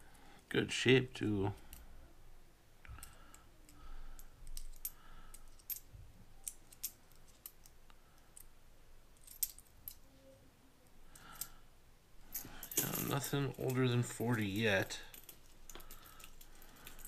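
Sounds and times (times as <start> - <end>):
coins clicking together: 4.1 - 5.8, 6.4 - 7.7, 12.3 - 13.8.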